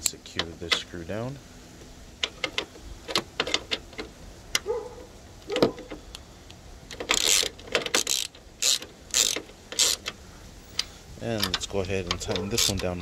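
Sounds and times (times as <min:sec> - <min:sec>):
hand ratchet clicking: 0:06.9 - 0:13.0.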